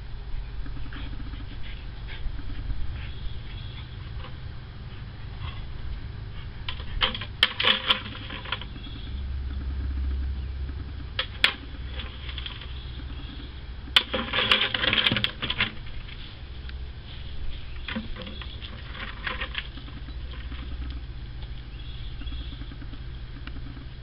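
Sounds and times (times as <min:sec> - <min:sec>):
plastic bucket clattering: 0:14.0 - 0:15.9.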